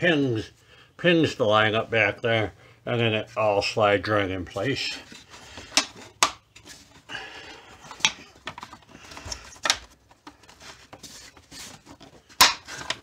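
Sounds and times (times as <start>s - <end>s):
plastic rustling: 4.9s - 13.0s
plastic clicks and knocks: 7.9s - 10.4s.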